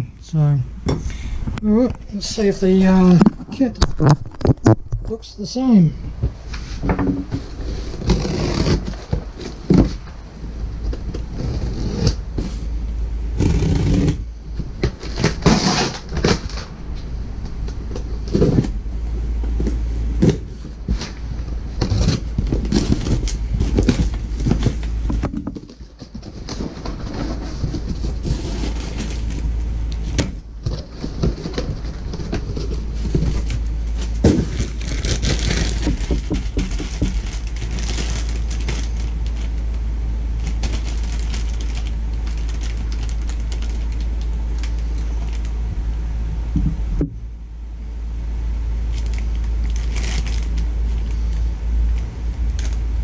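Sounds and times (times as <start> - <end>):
low rumble: 0.0 - 53.0
plastic bag rustling: 6.3 - 12.8, 19.5 - 45.6, 48.9 - 52.8
knife slitting cardboard box: 6.6 - 10.0, 15.0 - 16.7.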